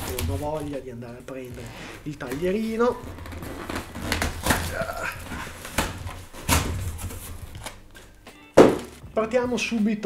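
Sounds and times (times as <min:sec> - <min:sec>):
cardboard box tearing: 0:02.4 - 0:07.7
loud thump: 0:08.6 - 0:09.0.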